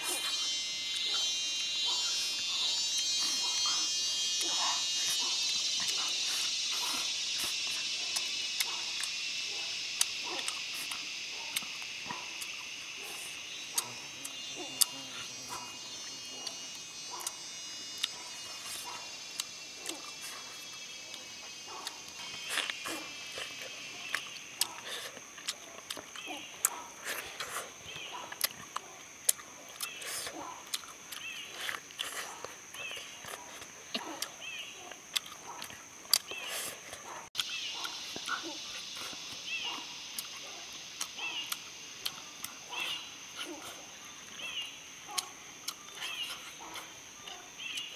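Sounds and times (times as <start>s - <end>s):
mouth chewing: 0.0s - 44.5s, 45.1s - 47.9s
high-pitched insect trill: 0.0s - 47.9s
person chewing with lip smacks: 10.0s - 12.6s, 18.8s - 20.4s, 21.8s - 27.7s, 28.3s - 39.4s.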